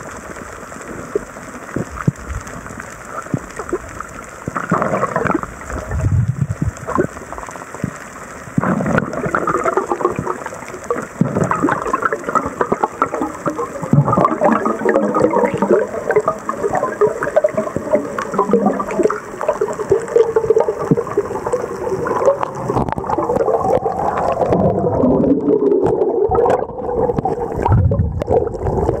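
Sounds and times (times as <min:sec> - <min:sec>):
gurgling water: 0:00.0 - 0:29.0.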